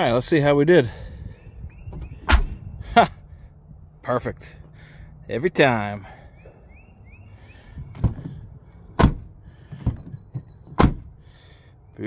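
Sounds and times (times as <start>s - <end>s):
car door shutting thunks: 7.8s - 8.4s, 9.0s - 11.1s.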